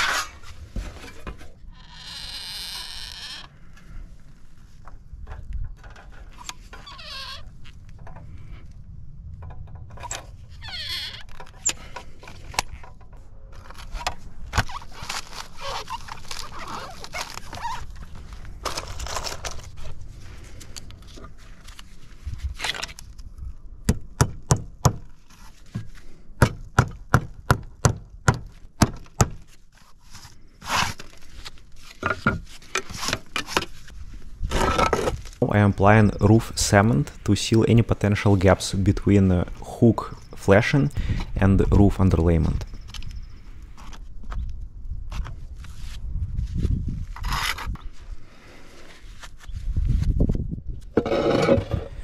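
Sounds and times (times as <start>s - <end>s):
handling and scraping: 0.0s - 23.5s, 25.0s - 26.4s, 28.5s - 52.0s
hammer knocks driving nails: 26.4s - 29.4s.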